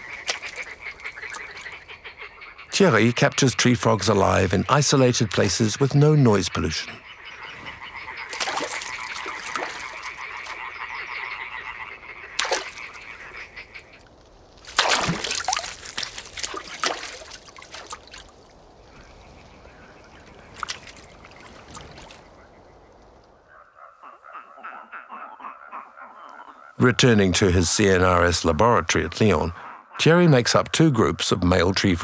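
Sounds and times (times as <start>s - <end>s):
splashes in water: 0.0s - 1.8s, 8.1s - 10.9s, 12.3s - 13.9s, 14.6s - 22.3s
rustling in wet plants: 0.0s - 2.1s, 7.1s - 23.4s
tree frogs calling: 0.0s - 32.0s.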